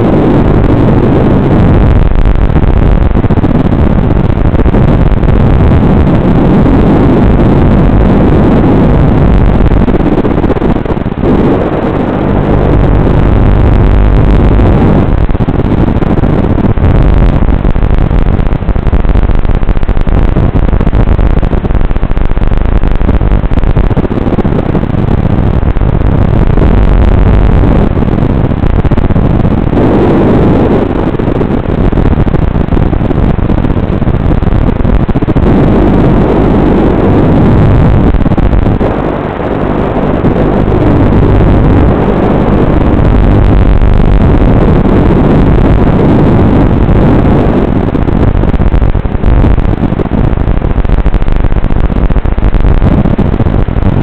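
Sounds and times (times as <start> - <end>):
drone motors and propellers: 0.0 - 51.5.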